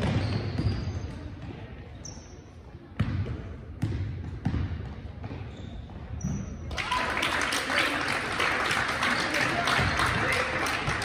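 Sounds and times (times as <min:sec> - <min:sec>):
basketball bouncing on floor: 0:00.0 - 0:01.6, 0:03.0 - 0:06.5
sneaker squeak: 0:00.0 - 0:03.2, 0:04.4 - 0:06.7.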